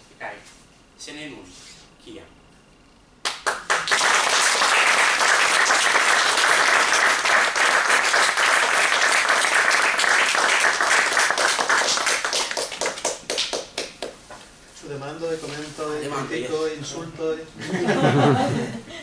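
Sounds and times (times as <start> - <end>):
audience applauding: 3.3 - 14.2.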